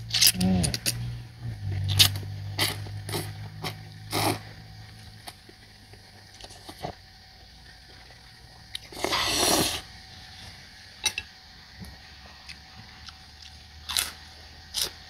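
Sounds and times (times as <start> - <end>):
noodles being slurped: 8.8 - 9.8.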